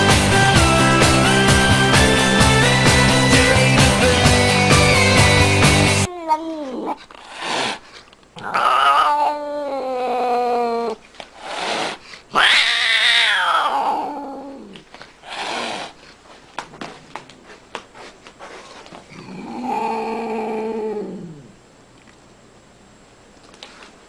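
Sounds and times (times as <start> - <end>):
cat meowing: 8.4 - 11.0, 12.4 - 14.7.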